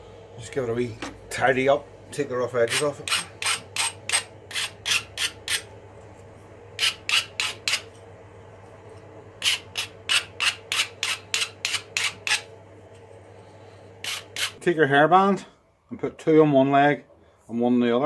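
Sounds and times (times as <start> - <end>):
file rasping on metal: 2.7 - 5.7, 6.8 - 7.9, 9.4 - 12.5, 14.0 - 14.6.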